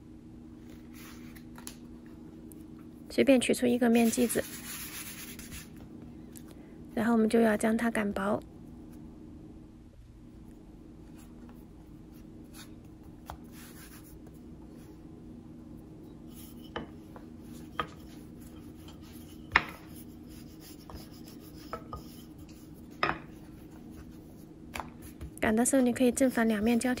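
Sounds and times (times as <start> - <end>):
steady low hum: 0.0 - 27.0
rolling pin rubbing on dough: 3.9 - 5.8, 16.2 - 27.0.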